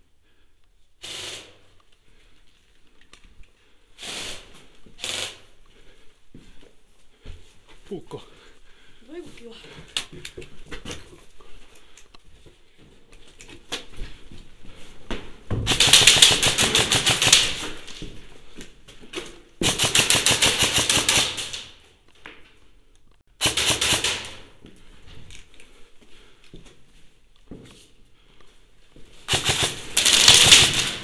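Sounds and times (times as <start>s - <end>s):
airsoft rifle firing bursts: 4.0s - 5.5s, 15.7s - 17.8s, 19.6s - 21.7s, 23.4s - 24.5s, 29.3s - 31.0s
light knocks and shuffling: 6.2s - 15.6s.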